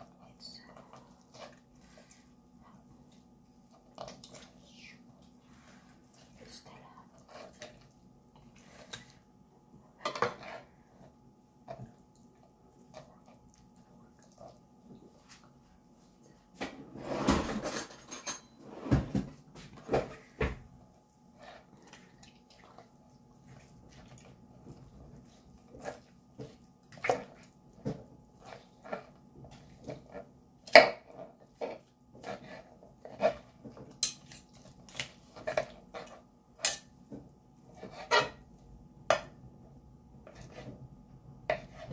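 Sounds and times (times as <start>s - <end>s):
knife and fork scraping cutting board: 37.7s - 38.4s.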